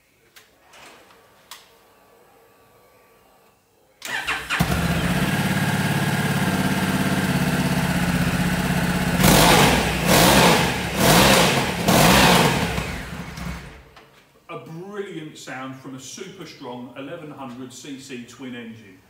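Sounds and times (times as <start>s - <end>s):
motorcycle engine starting and idling: 4.0s - 14.0s.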